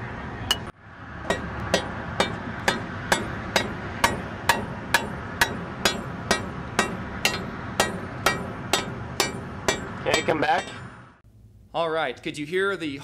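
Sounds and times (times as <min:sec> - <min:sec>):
steel rod striking concrete: 0:00.5 - 0:10.9.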